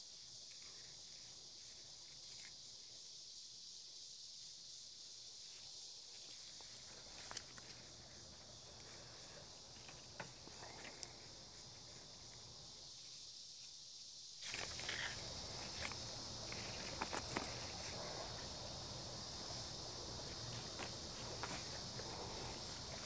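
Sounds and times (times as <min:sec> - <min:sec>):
high-pitched insect chorus: 0:00.0 - 0:23.0
rustling and handling noise: 0:05.6 - 0:13.8, 0:14.4 - 0:23.0.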